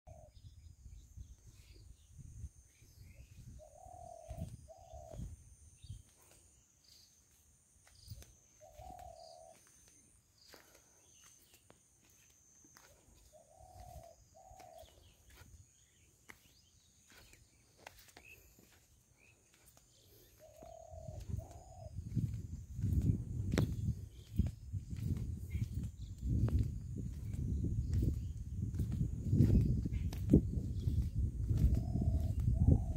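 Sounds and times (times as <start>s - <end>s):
dove cooing: 3.5s - 5.3s, 8.6s - 9.7s, 13.2s - 15.2s, 19.9s - 22.3s, 31.5s - 32.9s.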